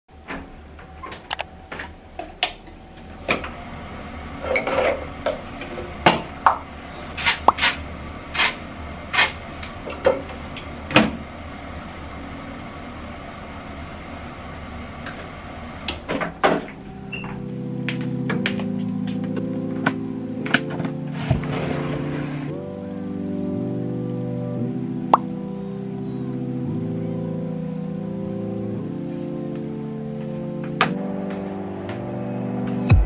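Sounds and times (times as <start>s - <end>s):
aerosol spray hissing: 8.4s - 8.6s.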